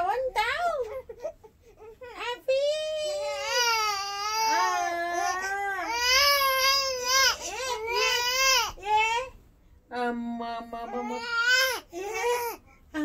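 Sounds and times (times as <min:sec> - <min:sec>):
infant crying and cooing: 0:03.1 - 0:08.8, 0:10.9 - 0:12.6.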